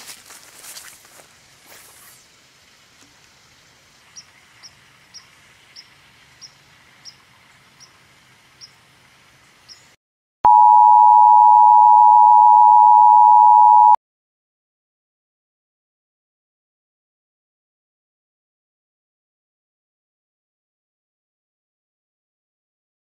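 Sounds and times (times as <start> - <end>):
electronic test tone: 10.5 - 14.0.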